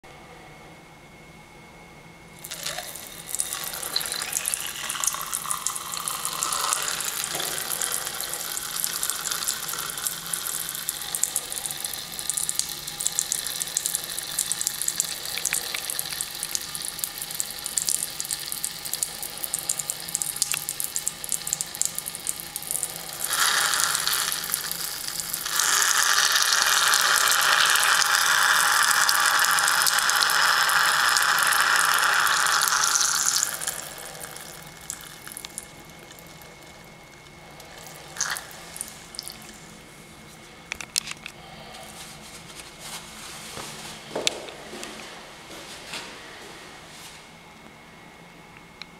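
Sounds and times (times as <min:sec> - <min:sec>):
urine splashing into urinal: 0:02.4 - 0:39.6.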